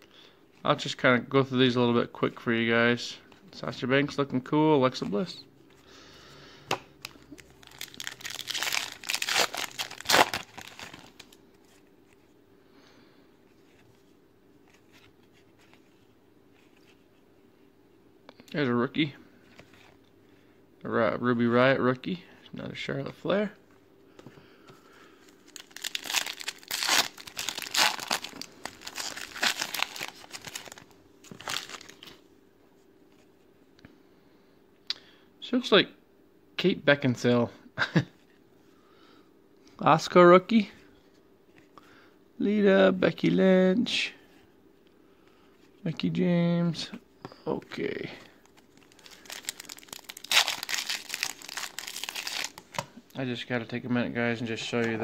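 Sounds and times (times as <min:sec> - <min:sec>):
foil wrapper crinkling and tearing: 0:07.0 - 0:11.4, 0:25.4 - 0:32.1, 0:48.4 - 0:52.8.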